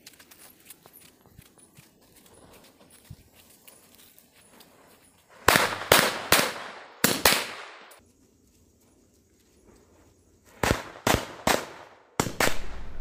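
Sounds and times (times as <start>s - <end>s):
firecracker bangs echoing: 5.4s - 8.0s.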